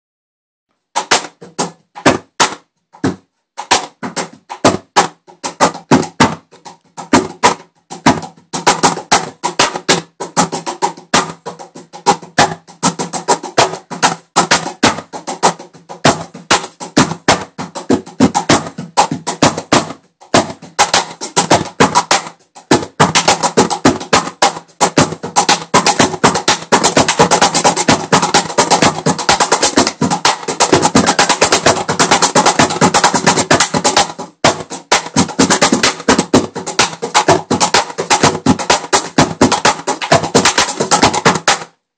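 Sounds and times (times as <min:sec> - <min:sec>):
hands striking wooden cajon: 0:01.0 - 0:41.8.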